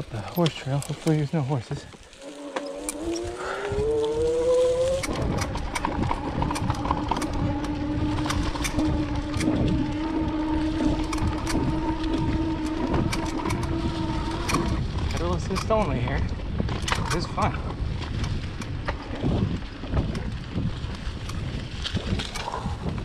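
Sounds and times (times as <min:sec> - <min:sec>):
bike clicks and rattles: 0:00.0 - 0:23.0
electric bike motor whining: 0:01.9 - 0:23.0.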